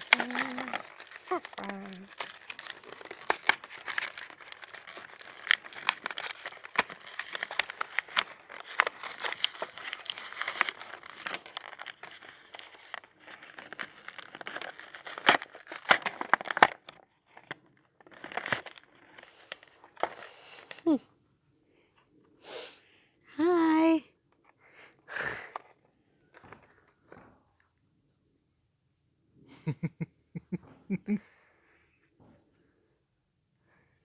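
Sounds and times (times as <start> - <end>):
plastic packaging crinkling: 0.0 - 20.9.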